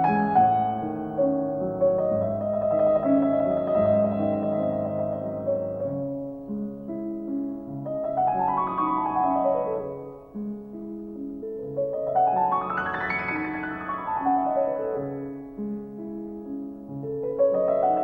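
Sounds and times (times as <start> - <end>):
solo piano music: 0.0 - 18.0.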